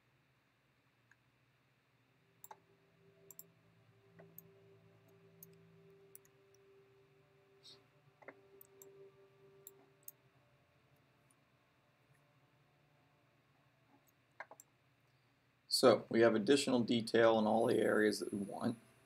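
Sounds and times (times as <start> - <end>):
faint steady hum: 0.0 - 19.0
computer mouse clicks: 3.3 - 3.5, 14.0 - 14.7.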